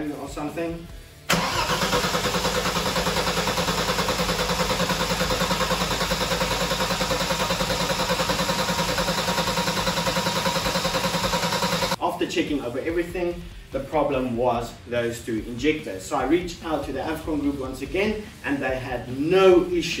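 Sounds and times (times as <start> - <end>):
car engine idling: 1.3 - 12.0.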